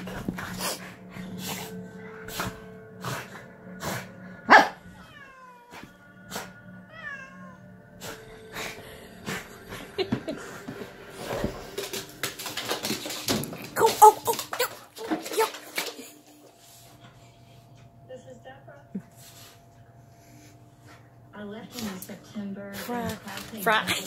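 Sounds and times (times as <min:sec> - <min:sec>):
cat meowing: 0:05.0 - 0:05.7, 0:06.9 - 0:07.6
dog scrambling on hardwood floor: 0:11.2 - 0:16.0.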